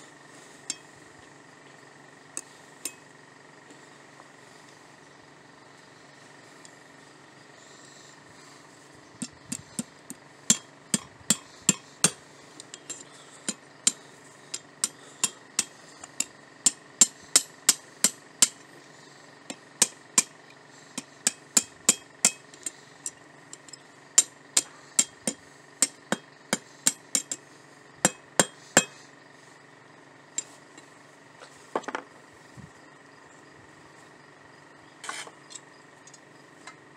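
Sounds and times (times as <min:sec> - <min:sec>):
metal scraping on anvil: 0:35.0 - 0:35.4.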